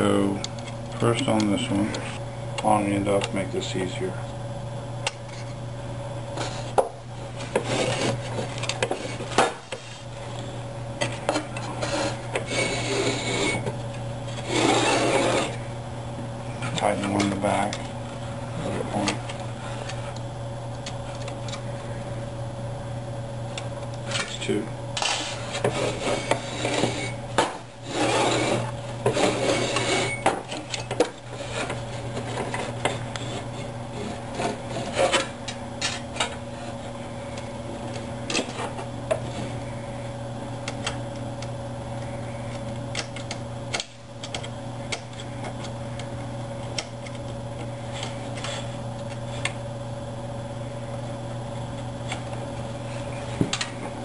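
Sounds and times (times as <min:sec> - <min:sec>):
steady low hum: 0:00.0 - 0:54.0
rubbing and scraping with clicks: 0:06.3 - 0:15.6, 0:25.0 - 0:37.0, 0:37.8 - 0:39.6, 0:42.5 - 0:49.6.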